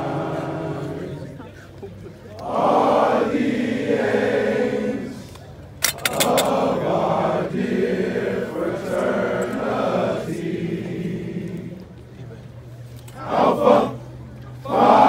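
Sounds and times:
men chanting in unison: 2.4s - 5.3s, 6.0s - 11.7s.

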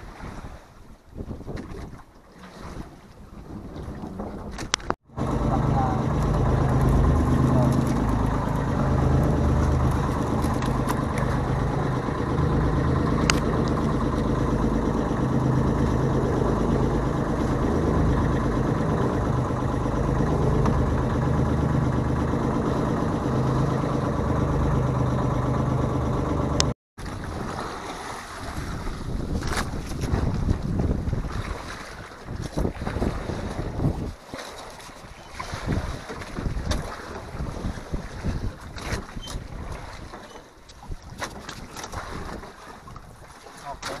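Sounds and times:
waves splashing against hull: 0.0s - 44.0s
wind buffeting microphone: 0.1s - 2.0s, 28.4s - 34.2s, 35.5s - 40.0s
boat engine humming: 2.2s - 44.0s.

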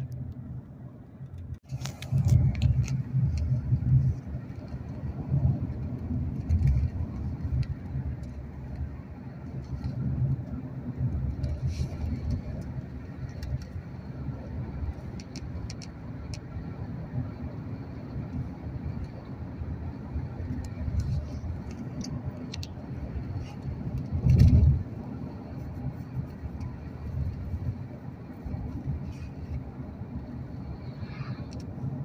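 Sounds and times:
car interior road noise: 0.0s - 32.0s.

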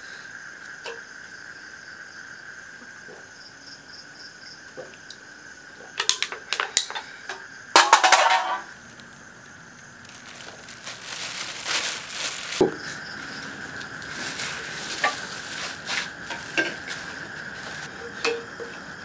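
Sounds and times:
can clattering on concrete: 7.8s - 8.7s
rustling: 8.2s - 17.9s.

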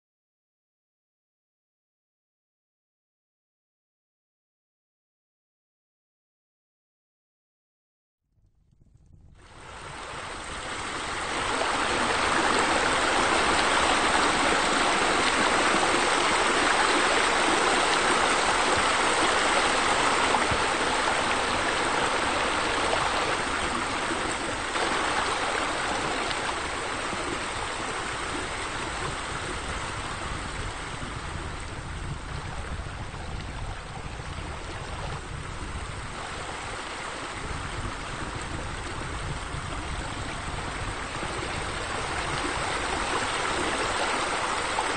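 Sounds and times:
running splashing water: 9.6s - 44.9s.

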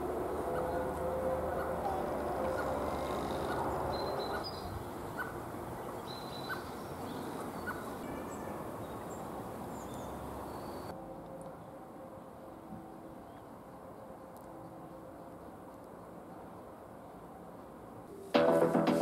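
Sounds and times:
bird calls: 0.4s - 10.9s.

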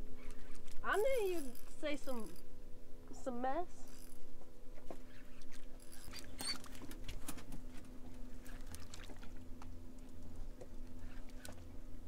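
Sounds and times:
low hum: 0.0s - 12.0s
fishing reel clicking: 0.2s - 2.4s, 3.9s - 4.2s, 5.1s - 6.3s.

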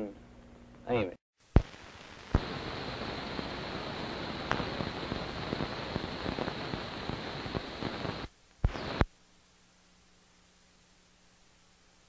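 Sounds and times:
old recording hiss and crackle: 0.0s - 12.0s
small pops: 1.5s - 9.1s.

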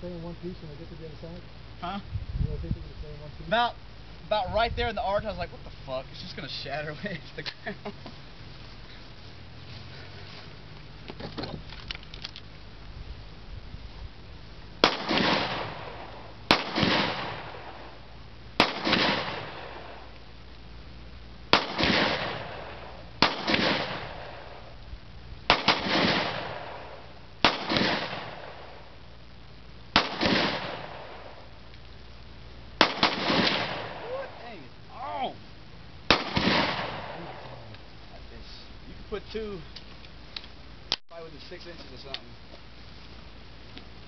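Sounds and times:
gunshots with echo: 14.8s - 18.0s, 18.6s - 20.1s, 21.5s - 24.7s, 25.5s - 28.8s, 30.0s - 31.4s, 32.8s - 34.4s, 36.1s - 37.5s.

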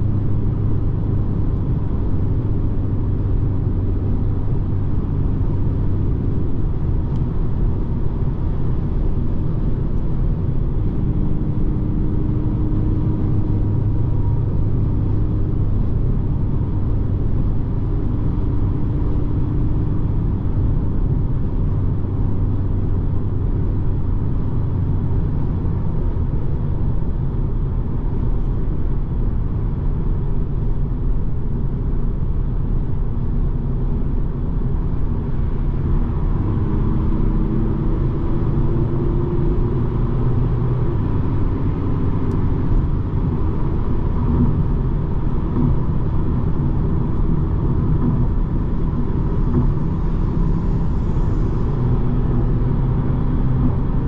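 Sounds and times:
car engine and road rumble: 0.0s - 54.0s.

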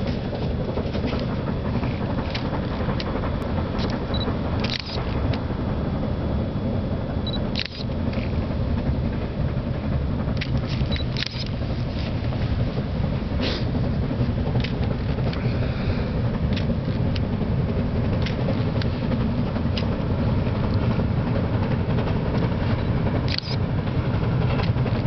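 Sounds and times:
distant steam locomotive rumble: 0.0s - 25.0s.

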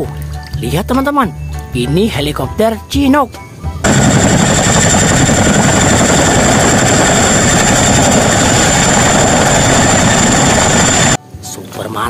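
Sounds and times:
helicopter rotor and engine noise: 3.8s - 11.2s
high turbine whine: 3.8s - 11.2s.

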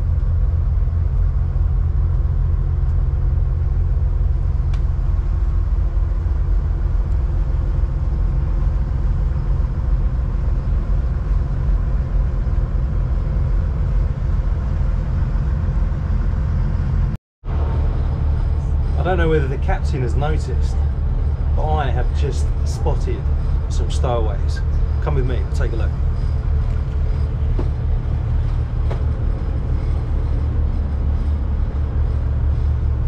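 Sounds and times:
boat engines droning: 0.0s - 33.0s.

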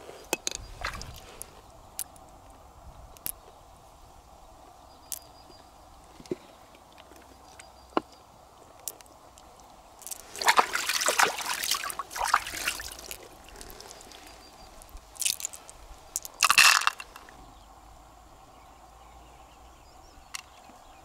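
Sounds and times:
water sloshing and trickling: 0.6s - 1.5s, 10.0s - 17.3s
pearls clattering into plastic dish: 15.2s - 15.6s, 16.2s - 17.2s.

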